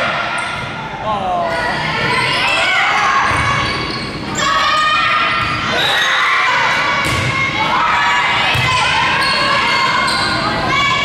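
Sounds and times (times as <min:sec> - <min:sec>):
girls shouting and cheering: 0:04.3 - 0:11.0.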